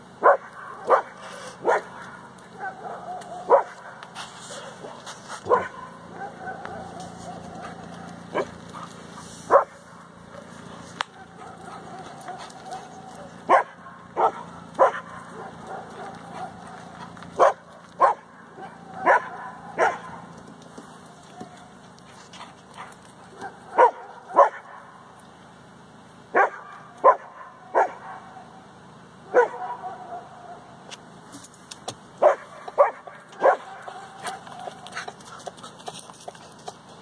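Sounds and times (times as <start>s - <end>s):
dog barking: 0.2s - 8.9s, 9.5s - 20.3s, 22.8s - 25.0s, 26.3s - 28.5s, 29.3s - 30.7s, 32.2s - 35.1s.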